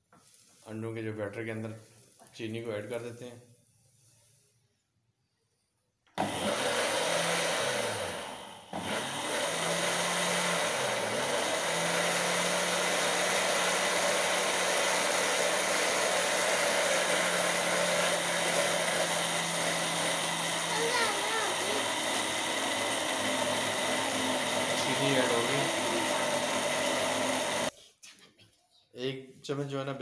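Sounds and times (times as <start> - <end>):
blender motor running: 6.2 - 27.7.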